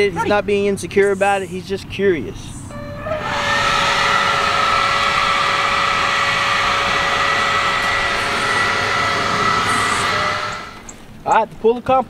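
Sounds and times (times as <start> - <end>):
blower motor running: 2.7 - 11.2.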